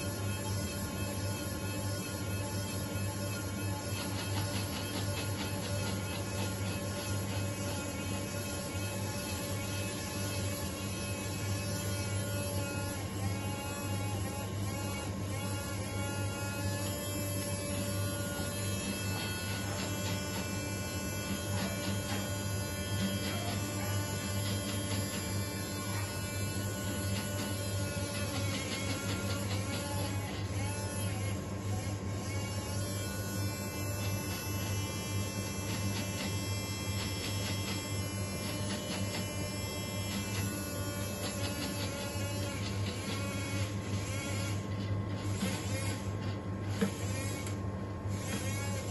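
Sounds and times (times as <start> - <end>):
electric motor hum and whine: 0.0 - 48.9.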